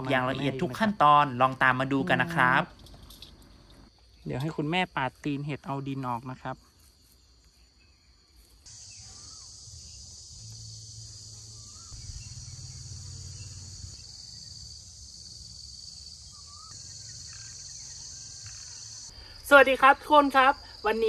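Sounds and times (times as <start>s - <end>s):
insects shrilling: 6.8s - 21.0s
low rumble: 10.8s - 14.3s.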